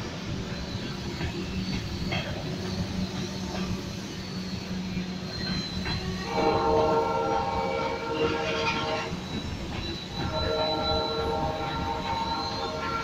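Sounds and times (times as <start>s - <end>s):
freight train wheels rumbling: 0.0s - 13.0s
train horn blast: 6.0s - 9.2s, 10.2s - 13.0s.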